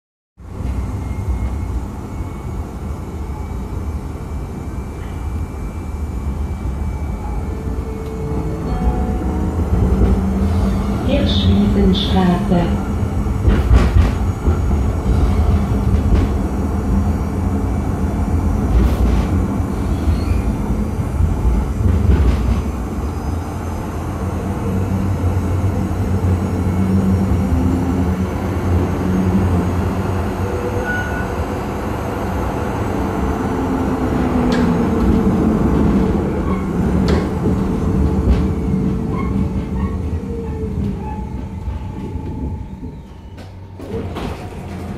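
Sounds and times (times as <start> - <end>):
tram wheels rumbling: 0.4 - 44.9
track clacks: 13.4 - 16.8, 34.4 - 44.9.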